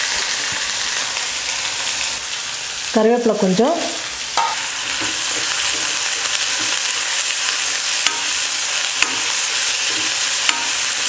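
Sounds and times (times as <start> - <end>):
onions sizzling in hot oil: 0.0 - 11.0
metal spoon stirring: 4.4 - 7.3, 8.0 - 11.0
spoon clicking against pan: 8.0 - 8.4, 9.0 - 10.9.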